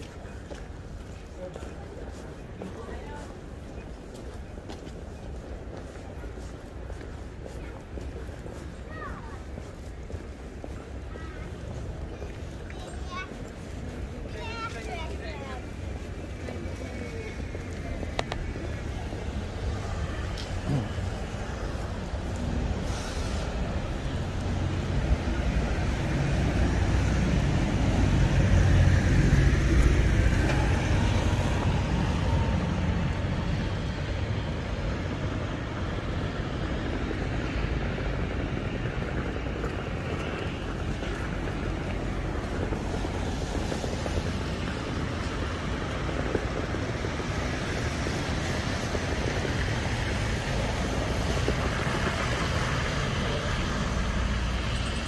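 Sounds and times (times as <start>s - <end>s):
passing traffic hum: 0.0s - 55.0s.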